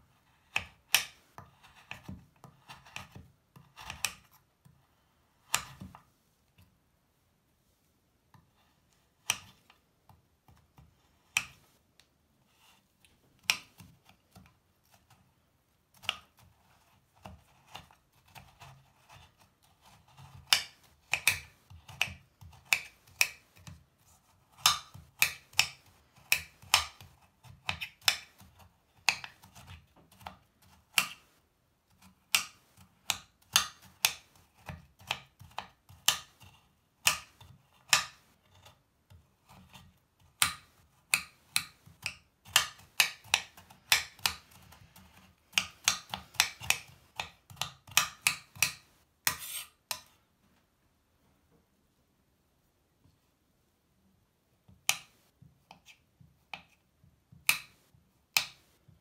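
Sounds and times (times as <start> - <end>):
knife chopping on cutting board: 40.4 - 50.1.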